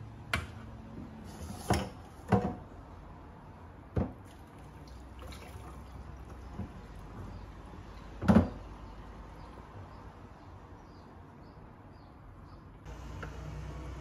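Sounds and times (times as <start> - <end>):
water pouring into a basket: 4.2 - 7.2.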